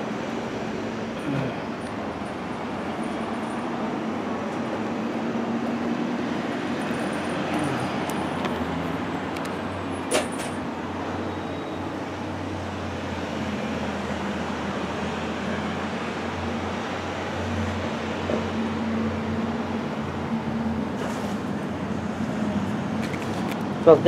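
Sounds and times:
road traffic noise: 0.0s - 24.0s.

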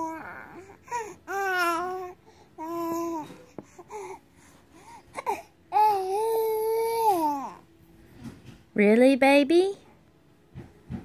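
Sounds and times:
baby cooing and babbling: 0.0s - 4.2s, 4.8s - 7.7s.

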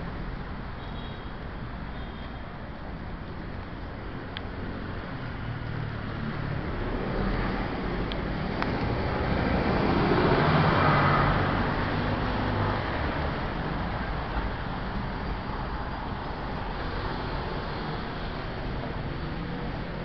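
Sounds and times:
traffic hum: 0.0s - 20.0s
vehicle passing by: 4.6s - 14.6s.

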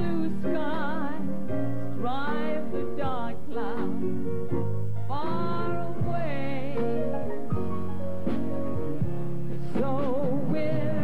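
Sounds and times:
person singing with vibrato: 0.0s - 1.3s, 9.7s - 11.0s
low musical accompaniment: 0.0s - 11.0s.

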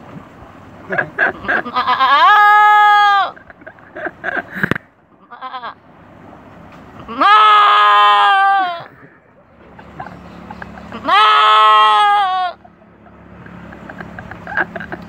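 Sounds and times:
man imitating goat bleats: 1.5s - 3.3s, 11.0s - 12.6s.

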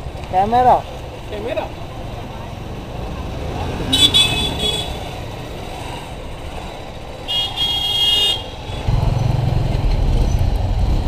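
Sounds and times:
motorcycle engine running: 0.0s - 11.0s
high-pitched vehicle horn tooting: 3.9s - 5.2s, 7.3s - 8.9s.

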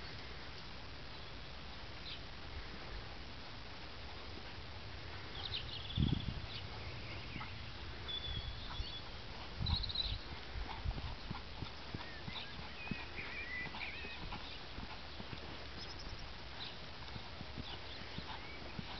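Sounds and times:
hooves thudding on sand: 3.8s - 18.9s.

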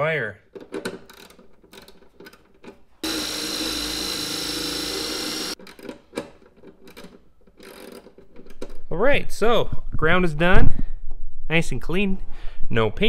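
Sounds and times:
wire brush on power drill: 3.0s - 5.6s.

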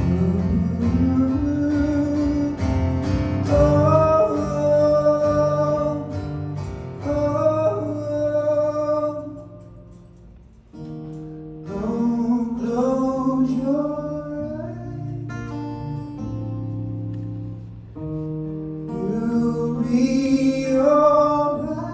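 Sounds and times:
man singing: 0.0s - 9.8s, 11.6s - 16.0s, 18.8s - 21.9s
strummed acoustic guitar: 0.0s - 21.9s.

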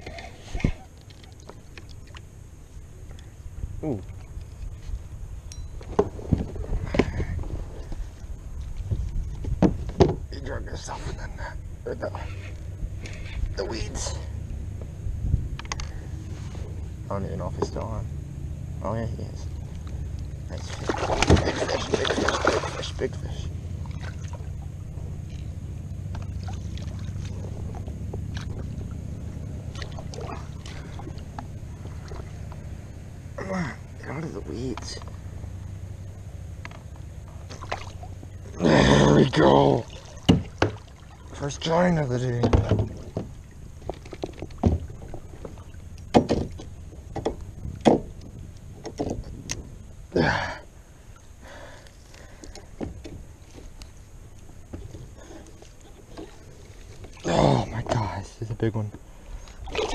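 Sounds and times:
low rumble: 1.6s - 59.9s
fishing gear and hull knocks: 4.0s - 10.6s, 14.6s - 16.8s, 19.4s - 38.6s, 39.9s - 41.4s, 42.1s - 49.9s, 51.2s - 58.2s
fish splashing: 20.6s - 23.1s, 23.7s - 33.1s, 37.3s - 38.6s, 39.8s - 41.4s, 59.1s - 59.9s
knocks on plastic kayak hull: 46.1s - 46.6s.

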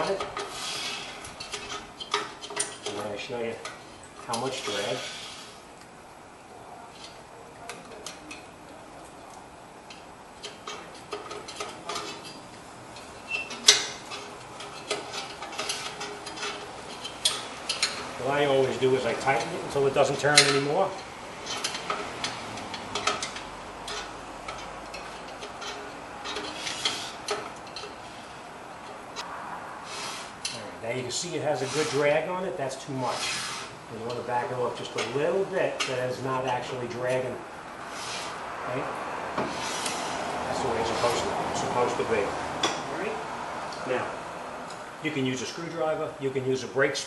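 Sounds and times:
brake rotor scraping: 0.0s - 5.9s, 9.9s - 43.5s.

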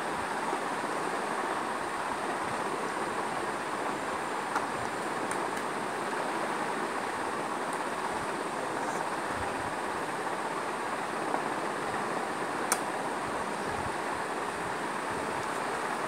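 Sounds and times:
steady background hiss: 0.0s - 16.0s
sharp click: 12.7s - 12.9s.

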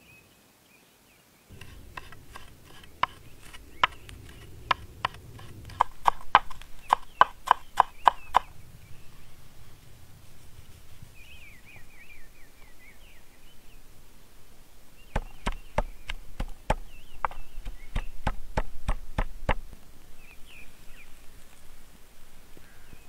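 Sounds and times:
birds chirping: 0.1s - 23.0s
pestle pounding in wooden mortar: 1.5s - 8.5s, 15.2s - 19.6s.

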